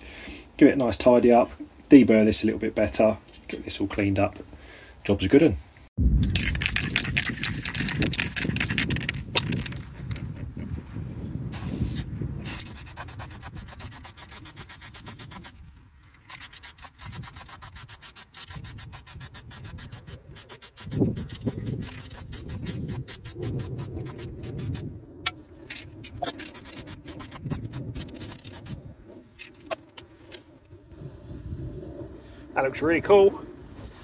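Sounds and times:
spray-paint can hissing: 0:11.5 - 0:15.5
steady low rumble: 0:21.2 - 0:34.0.

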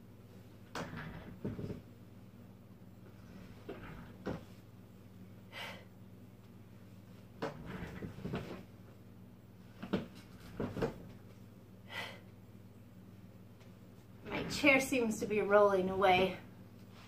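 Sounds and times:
low steady hum: 0:00.0 - 0:17.0
office chair creaking and knocking: 0:00.6 - 0:01.9, 0:03.2 - 0:04.6, 0:07.4 - 0:08.7, 0:09.7 - 0:11.2
person breathing out: 0:05.5 - 0:05.9, 0:11.9 - 0:12.3.

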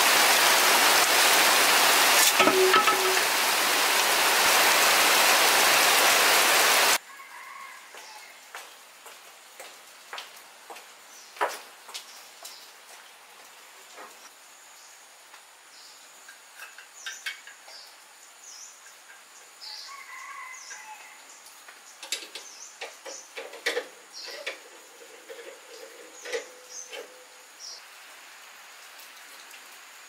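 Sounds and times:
metal and bamboo clicks and knocks: 0:16.3 - 0:17.9, 0:22.0 - 0:27.2.

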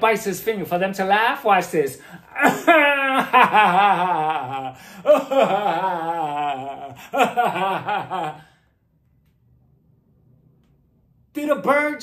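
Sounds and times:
man laughing: 0:02.1 - 0:08.6.

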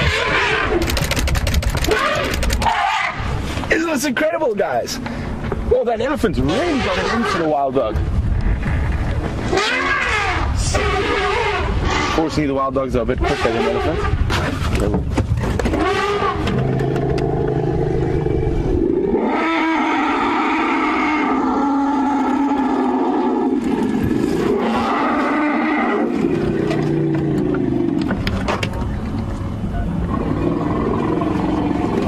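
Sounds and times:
elephants trumpeting: 0:00.0 - 0:00.8, 0:01.8 - 0:03.3, 0:06.4 - 0:07.6, 0:09.5 - 0:12.4, 0:13.2 - 0:14.2, 0:15.6 - 0:28.0.

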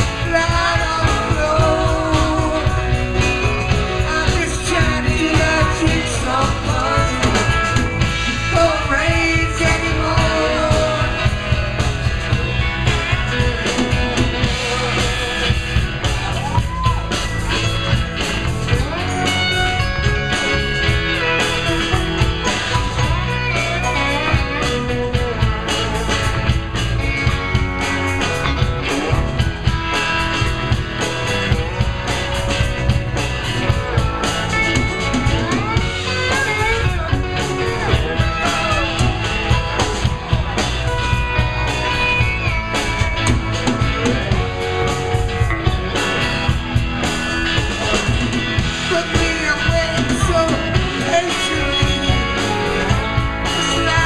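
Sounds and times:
man singing: 0:00.0 - 0:15.5, 0:47.8 - 0:54.0
drum kit: 0:00.0 - 0:54.0
electric bass: 0:00.0 - 0:54.0
electric guitars: 0:00.0 - 0:54.0.

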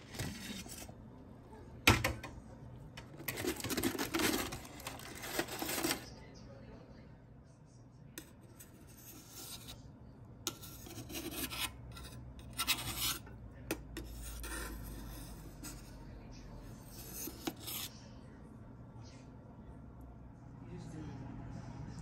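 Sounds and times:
knife scraping metal baking pan: 0:03.2 - 0:06.0, 0:08.2 - 0:09.8, 0:10.5 - 0:15.9, 0:16.8 - 0:17.9.

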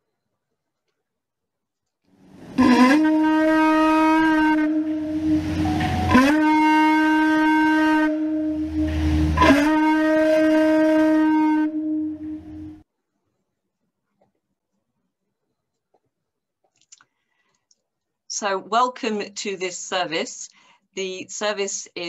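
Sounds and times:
conch shell trumpet blasts: 0:02.6 - 0:12.8.

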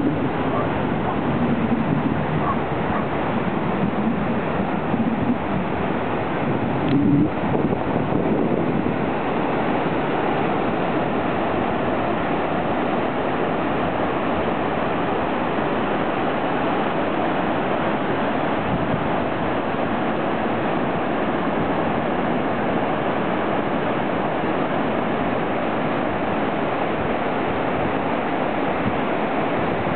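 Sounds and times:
ocean waves breaking: 0:00.0 - 0:29.9.

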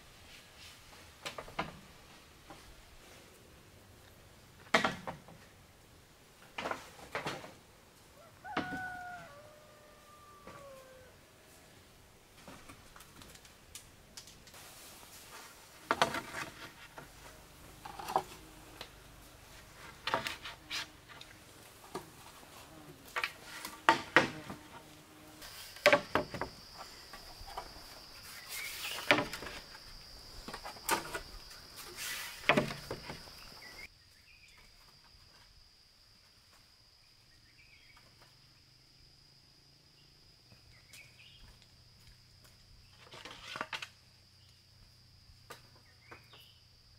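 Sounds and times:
high insect trill: 0:14.6 - 0:46.9.

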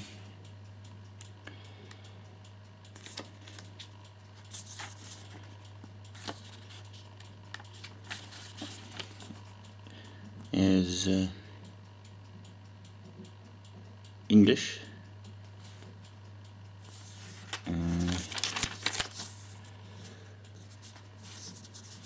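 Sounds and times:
paper pages rustling: 0:03.0 - 0:03.9, 0:04.5 - 0:05.4, 0:06.2 - 0:09.4, 0:16.9 - 0:19.6, 0:20.6 - 0:22.0.

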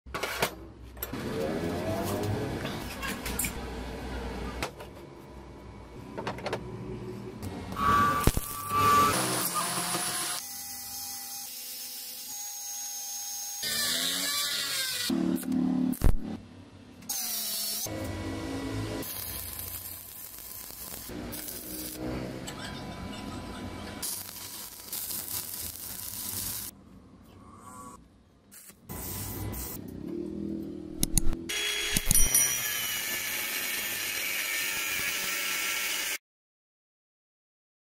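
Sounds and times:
angle grinder whining: 0:07.7 - 0:11.0
angle grinder cutting steel: 0:07.8 - 0:15.2, 0:17.1 - 0:23.3, 0:31.5 - 0:36.2.

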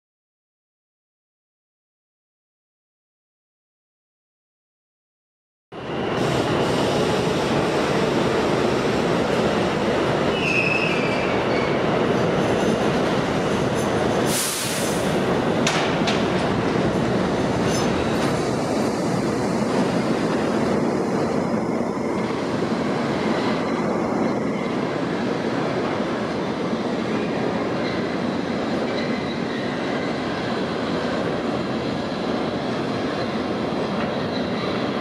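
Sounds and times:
subway train wheels rumbling: 0:05.7 - 0:35.0
high wheel squeal: 0:10.2 - 0:11.9, 0:28.8 - 0:30.4.

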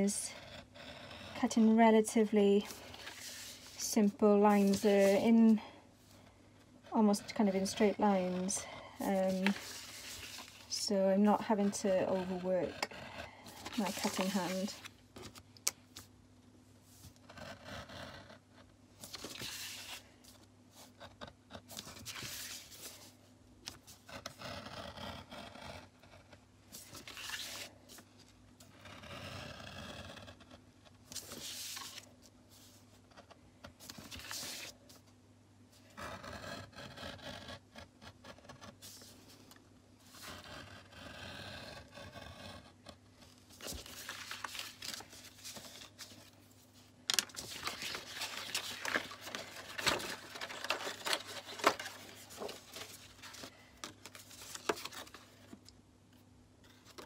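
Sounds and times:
craft knife cutting paper: 0:07.0 - 0:15.4, 0:20.8 - 0:32.0, 0:35.9 - 0:39.1, 0:40.1 - 0:46.3, 0:47.2 - 0:55.6.

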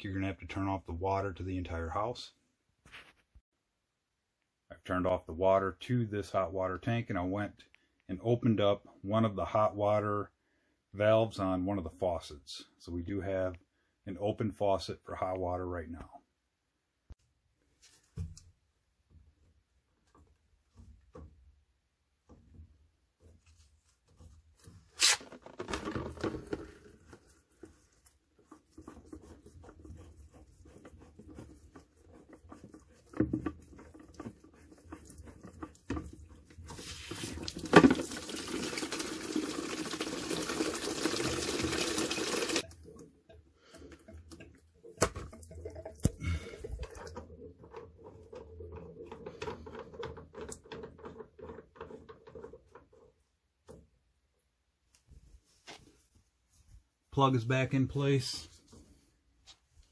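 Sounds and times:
water rushing into bucket: 0:31.4 - 0:52.1
water dripping into bucket: 0:32.6 - 0:51.9.

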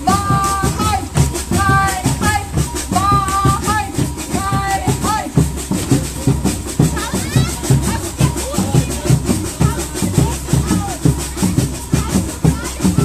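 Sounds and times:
drum beat: 0:00.0 - 0:13.0
shaker rattling: 0:00.0 - 0:13.0.

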